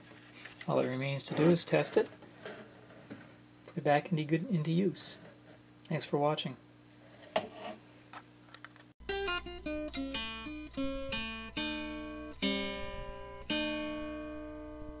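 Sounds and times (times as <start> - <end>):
acoustic guitar music: 9.0 - 15.0.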